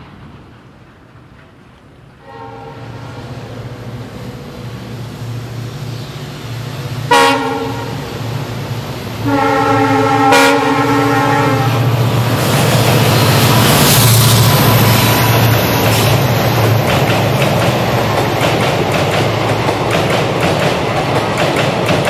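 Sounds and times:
diesel locomotive engine drone: 0:00.0 - 0:22.0
rail and train noise: 0:00.0 - 0:22.0
locomotive horn blasts: 0:02.2 - 0:03.0, 0:07.1 - 0:08.0, 0:09.2 - 0:11.9.

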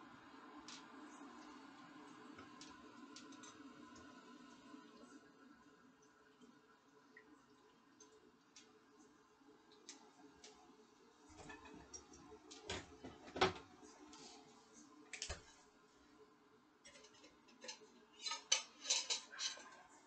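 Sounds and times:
dishes and utensils clattering: 0:11.3 - 0:12.0, 0:12.6 - 0:13.6, 0:16.8 - 0:20.0.

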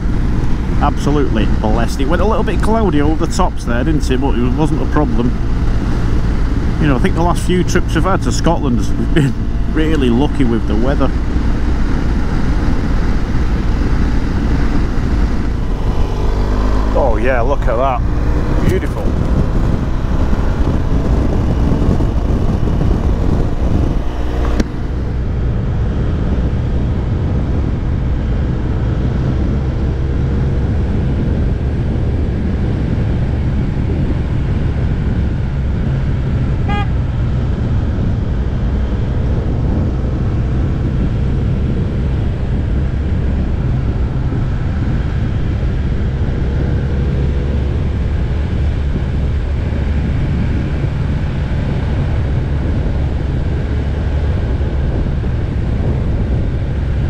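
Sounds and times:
motorcycle engine running: 0:00.0 - 0:57.0
wind noise: 0:00.0 - 0:57.0
horn toot: 0:36.6 - 0:37.0.

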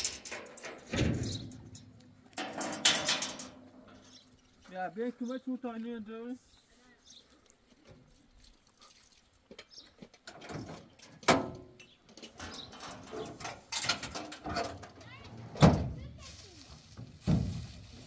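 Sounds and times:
tailgate rattling: 0:00.0 - 0:04.1, 0:10.3 - 0:16.0.

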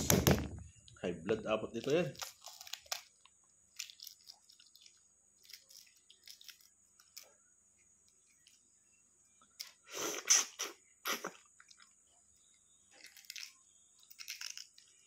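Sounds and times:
eggshell crackling: 0:00.0 - 0:15.0
eating sounds: 0:09.4 - 0:12.1.

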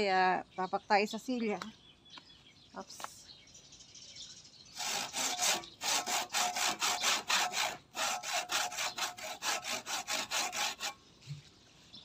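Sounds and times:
hand saw cutting branch: 0:04.8 - 0:11.0.

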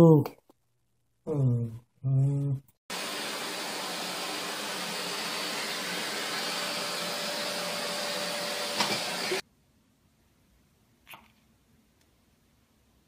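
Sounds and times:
vacuum cleaner running: 0:02.9 - 0:09.4.

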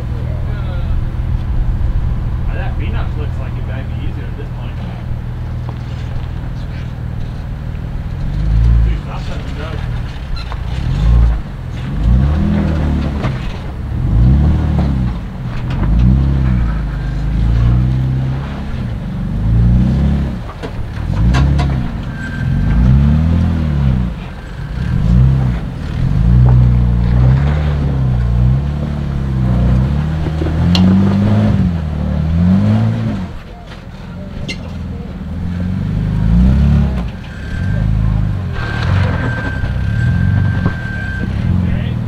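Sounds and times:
engine revving under load: 0:00.0 - 0:42.0.

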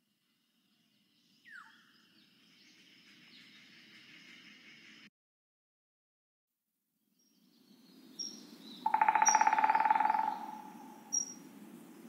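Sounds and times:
low forest hiss: 0:00.0 - 0:05.1, 0:07.2 - 0:12.0
woodpecker drumming: 0:08.8 - 0:11.4.

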